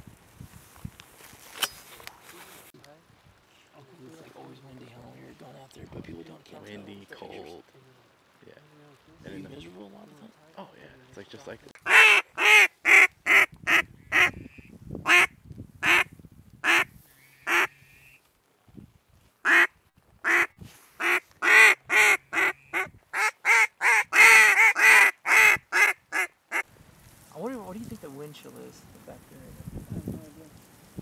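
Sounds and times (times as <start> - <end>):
duck call quacks: 11.8 - 18.2, 19.5 - 19.7, 20.3 - 26.6.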